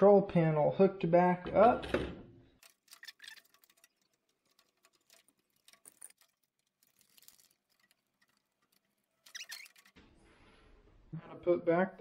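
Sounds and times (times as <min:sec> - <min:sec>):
small handling noises: 0:02.6 - 0:11.0.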